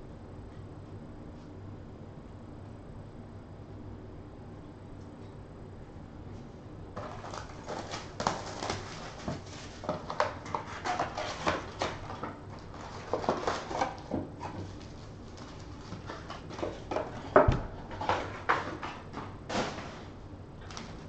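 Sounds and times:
cardboard and wrappers crinkling: 0:07.0 - 0:21.0.

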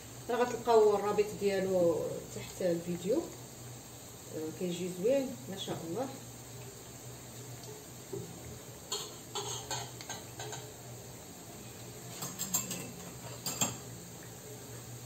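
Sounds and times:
dough sizzling in oil: 0:00.0 - 0:15.0
metal pot and lid clinking: 0:08.9 - 0:10.7, 0:12.1 - 0:13.9.

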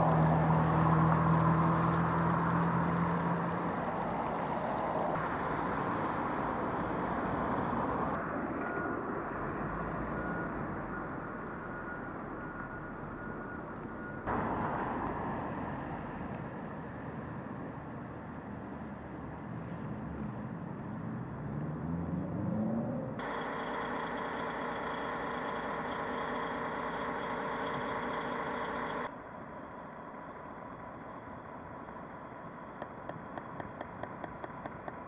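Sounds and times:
low engine hum: 0:00.0 - 0:35.0
road traffic: 0:00.0 - 0:35.0.

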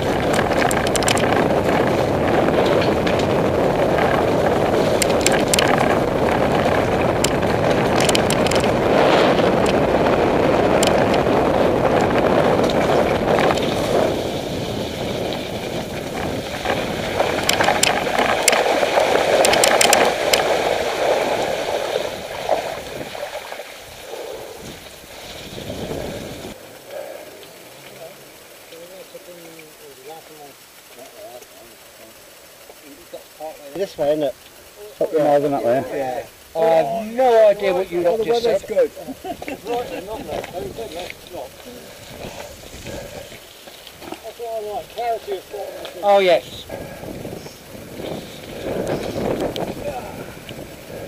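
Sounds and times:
wind buffeting microphone: 0:00.0 - 0:26.6, 0:37.2 - 0:51.0
bike clicks and rattles: 0:00.0 - 0:36.5, 0:37.2 - 0:51.0
bike tyre rumble: 0:00.0 - 0:51.0.

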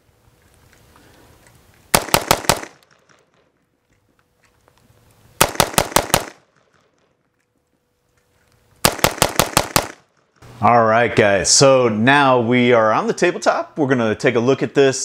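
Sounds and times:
rifle shots: 0:01.9 - 0:03.5, 0:05.4 - 0:07.1, 0:08.8 - 0:10.2.

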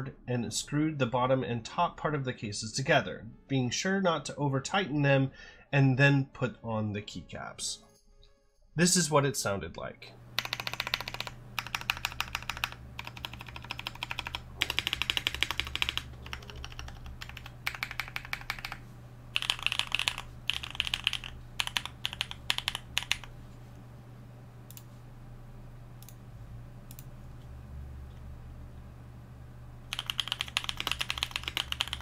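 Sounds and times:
mechanical keyboard typing: 0:10.4 - 0:18.8, 0:19.4 - 0:23.3, 0:29.9 - 0:32.0.

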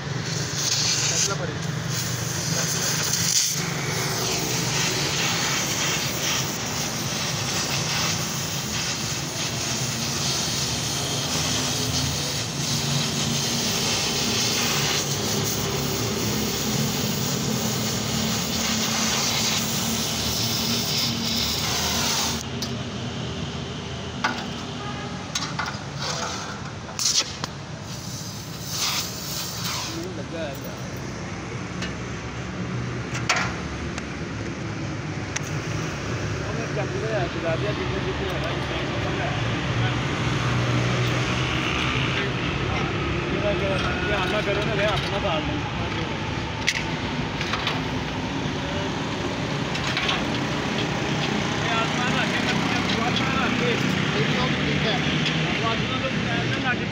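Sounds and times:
welding torch flame hissing: 0:00.0 - 0:22.8, 0:26.0 - 0:30.3, 0:46.2 - 0:55.2.

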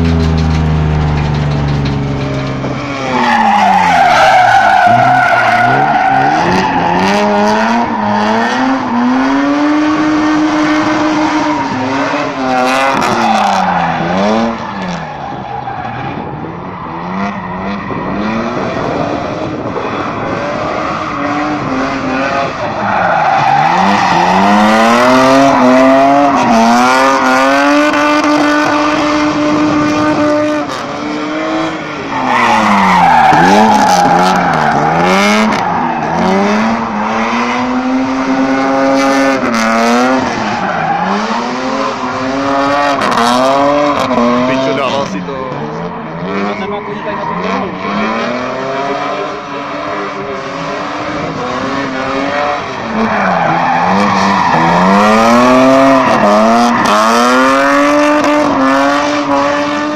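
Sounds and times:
car engine revving: 0:00.0 - 0:59.9
tyres squealing: 0:00.1 - 0:07.0.

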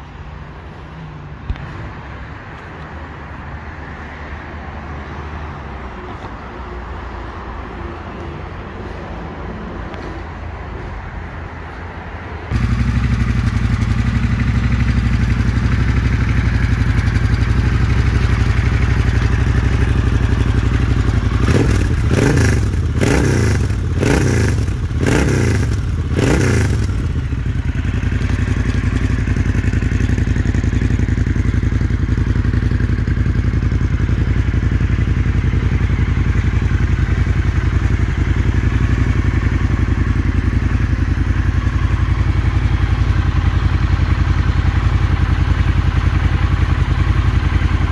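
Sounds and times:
engine revving: 0:12.5 - 0:14.9, 0:19.0 - 0:27.4
motorcycle engine idling: 0:12.5 - 0:47.9.

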